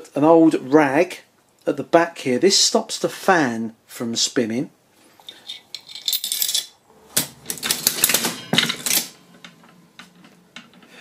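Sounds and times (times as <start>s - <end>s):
slot machine clicking and clatter: 7.2s - 9.2s.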